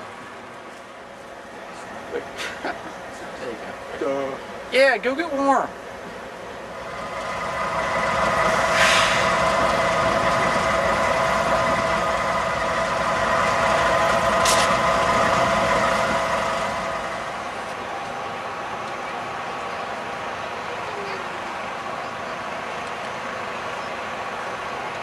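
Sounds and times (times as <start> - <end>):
locomotive engine idling: 0.0 - 25.0
short hisses: 8.6 - 9.4.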